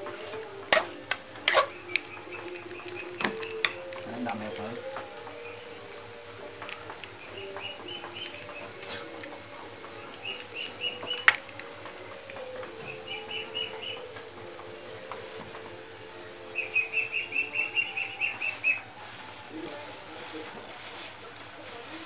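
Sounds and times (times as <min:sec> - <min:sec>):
small bird chirping: 0:10.0 - 0:11.5, 0:12.8 - 0:14.1, 0:16.5 - 0:18.9.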